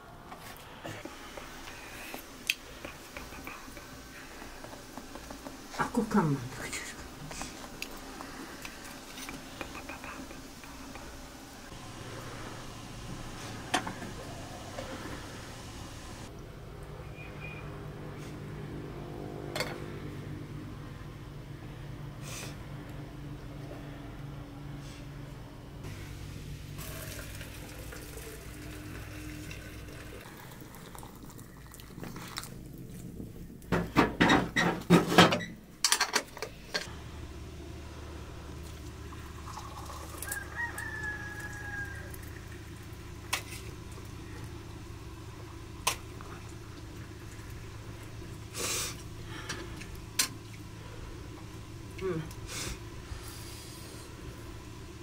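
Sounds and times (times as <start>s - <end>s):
tea pouring into glasses: 26.8s - 33.0s, 38.6s - 44.6s, 45.4s - 48.5s
rooster crowing: 39.9s - 42.7s.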